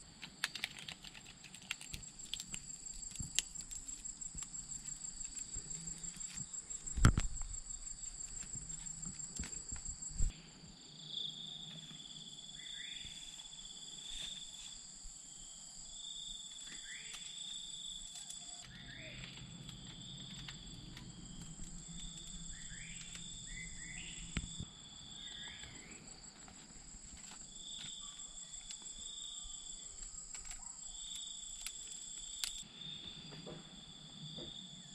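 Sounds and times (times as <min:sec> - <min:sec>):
bamboo strip ticks and rustles: 0:00.0 - 0:10.3, 0:16.4 - 0:24.7, 0:25.6 - 0:32.6
insects trilling: 0:00.0 - 0:34.9
low insect drone: 0:00.0 - 0:34.9.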